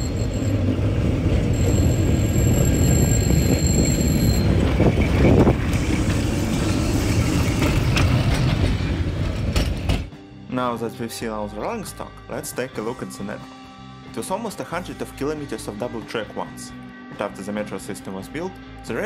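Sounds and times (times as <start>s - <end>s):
tram rumbling along rails: 0.0s - 10.2s
thin high whine: 1.4s - 6.0s.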